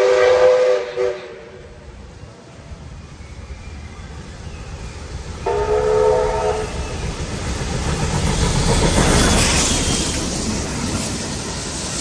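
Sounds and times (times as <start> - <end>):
steam locomotive whistle: 0.0 - 1.9, 5.4 - 7.0
steam locomotives rumbling: 0.0 - 12.0.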